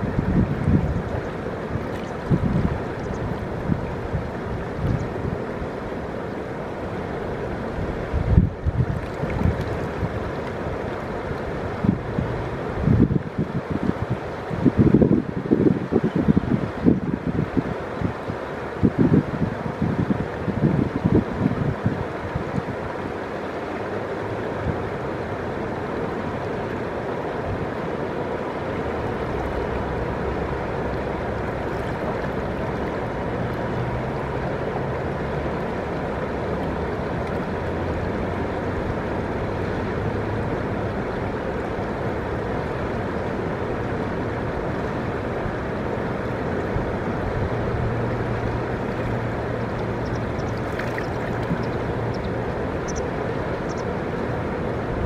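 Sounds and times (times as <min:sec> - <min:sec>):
river flowing: 0:00.0 - 0:55.0.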